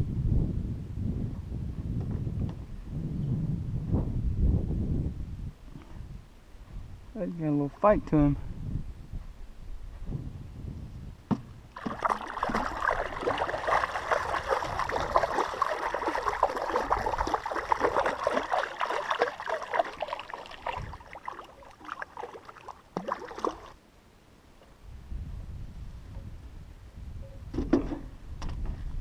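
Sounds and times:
fish thrashing and splashing: 0:11.8 - 0:23.8.

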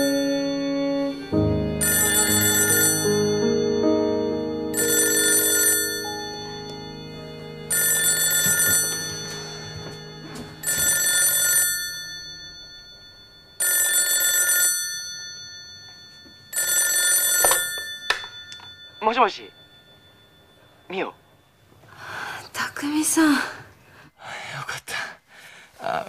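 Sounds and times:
telephone ringing electronically: 0:01.8 - 0:03.6, 0:04.8 - 0:06.6, 0:07.7 - 0:21.1.

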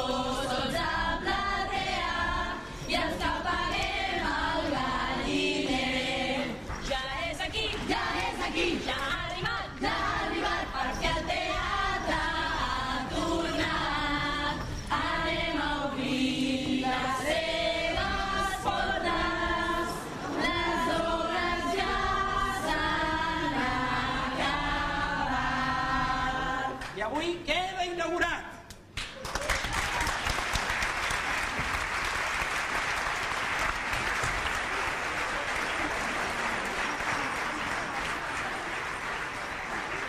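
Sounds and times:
chorus singing: 0:00.0 - 0:27.0.

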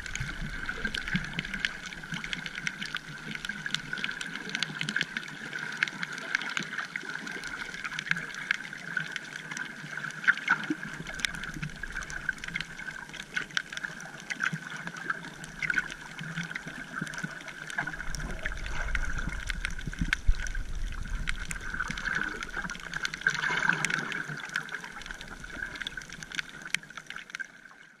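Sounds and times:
underwater clicks crackling: 0:00.0 - 0:27.5
steady underwater hum: 0:00.0 - 0:27.9
deep rumble: 0:17.9 - 0:23.1.

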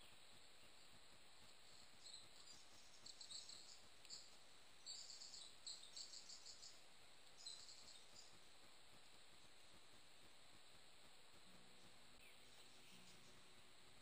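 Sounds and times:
microphone hiss: 0:00.0 - 0:14.0
songbird trilling chirps: 0:01.6 - 0:08.5, 0:11.7 - 0:13.7.

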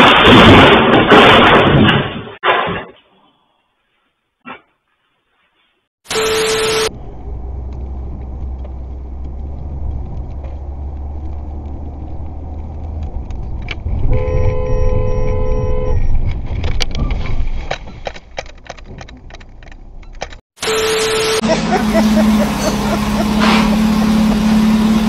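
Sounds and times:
road and engine rumble: 0:06.7 - 0:25.0
car horn honking: 0:14.1 - 0:16.0.

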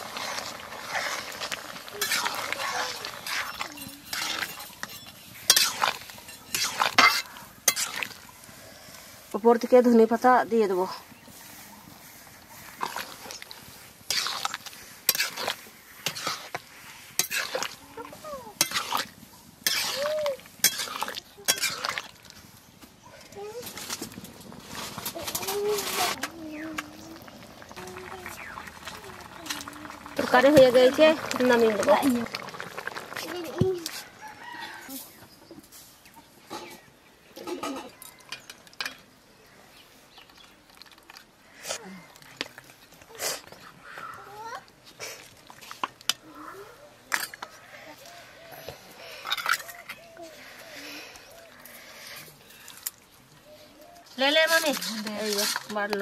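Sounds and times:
spatula scraping a pan: 0:00.0 - 0:08.3, 0:11.3 - 0:22.2, 0:54.2 - 0:56.0.

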